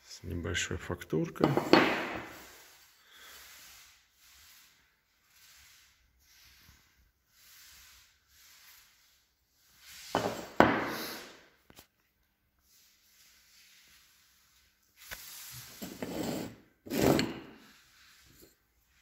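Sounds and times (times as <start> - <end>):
tile knocking on wooden table: 1.4 - 2.2
tile rubbing in hand: 1.5 - 11.4, 12.6 - 19.0.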